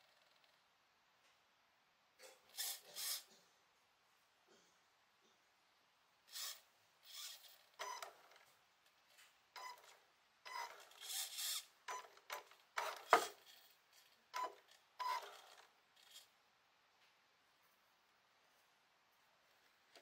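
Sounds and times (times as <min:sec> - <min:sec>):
toy car electric motor whirring: 0:02.5 - 0:03.3, 0:06.3 - 0:08.4, 0:10.5 - 0:11.7, 0:12.3 - 0:16.3.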